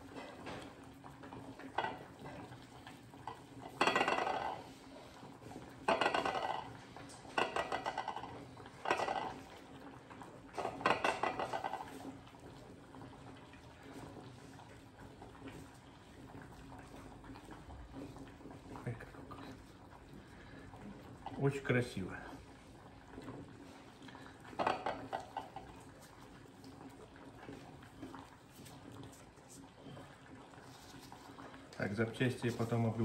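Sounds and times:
dishware rattling and scraping: 3.7 - 4.6, 5.9 - 6.7, 7.3 - 9.4, 10.6 - 11.8.

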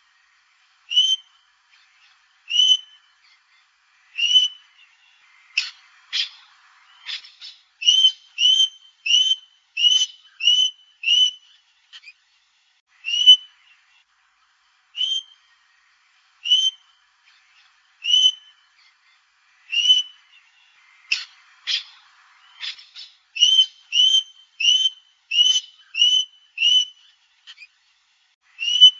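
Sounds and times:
parrot piping whistles: 7.8 - 11.5, 13.0 - 13.5, 18.0 - 18.5, 23.4 - 27.0, 28.6 - 28.9.

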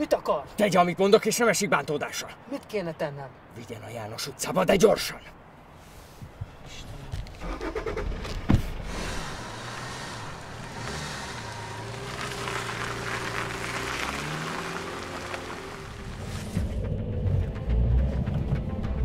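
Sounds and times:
car engine starting and running: 7.3 - 19.0.

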